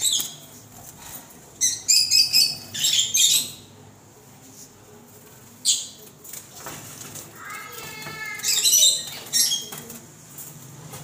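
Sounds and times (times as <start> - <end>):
sparrows chirping: 0.0 - 3.8, 7.4 - 10.5.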